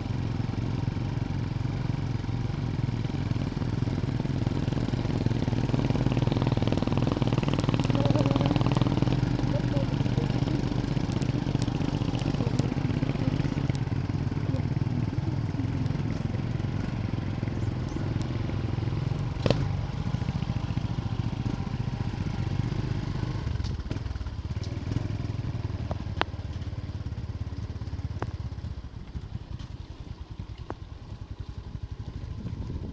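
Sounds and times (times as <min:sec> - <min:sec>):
motorcycle engine running: 0:00.0 - 0:32.9
tyres on gravel: 0:04.8 - 0:22.0.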